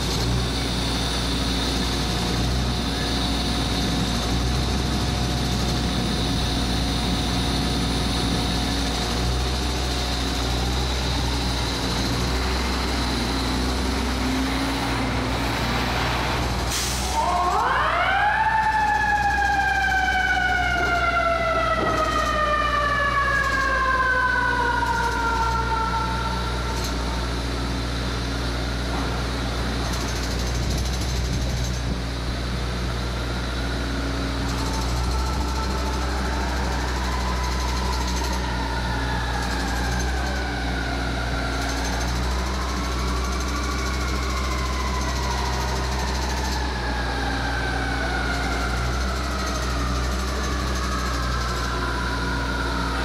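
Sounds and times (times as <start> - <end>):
mechanical siren winding: 23.2 - 24.1.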